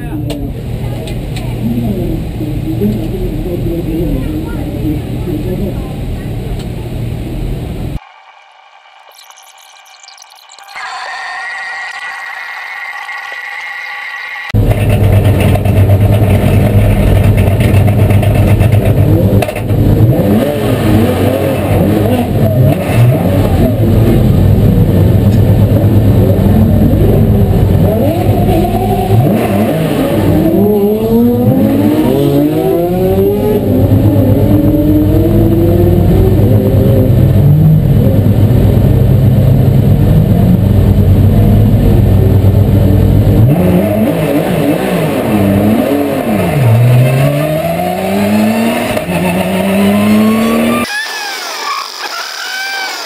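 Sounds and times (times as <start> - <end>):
race car engine revving: 13.0 - 50.9.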